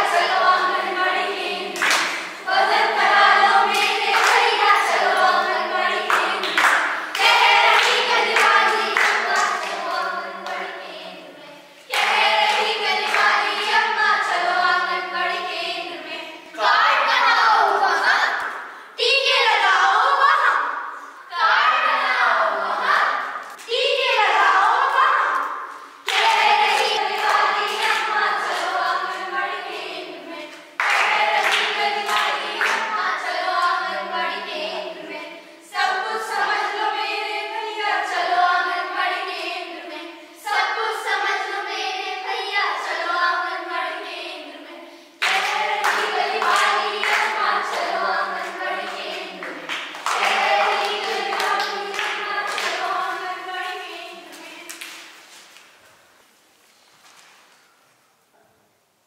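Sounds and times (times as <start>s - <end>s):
children singing together: 0.0s - 55.2s
hand claps: 1.8s - 2.4s, 3.7s - 4.5s, 6.1s - 9.9s, 30.8s - 32.9s, 45.2s - 48.6s, 49.4s - 52.8s.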